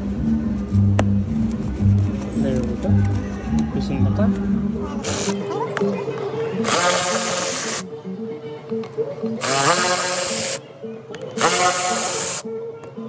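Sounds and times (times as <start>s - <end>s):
background music: 0.0s - 13.0s
power screwdriver whining: 5.1s - 5.4s, 6.6s - 7.8s, 9.4s - 10.6s, 11.4s - 12.4s.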